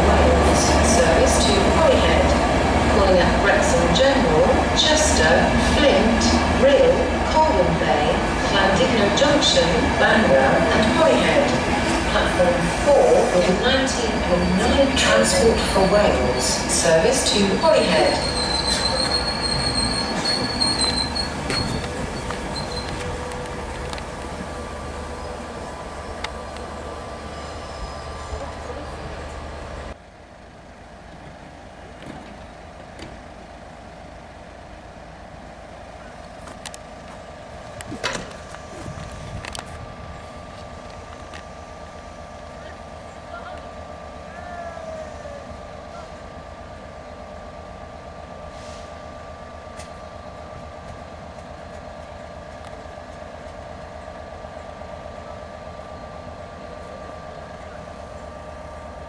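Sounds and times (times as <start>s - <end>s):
diesel locomotive drone: 0.0s - 59.0s.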